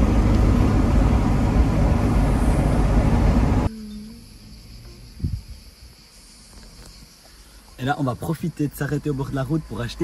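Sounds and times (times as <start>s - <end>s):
road and wind noise inside truck: 0.0s - 6.0s
insect chirring: 3.7s - 10.0s.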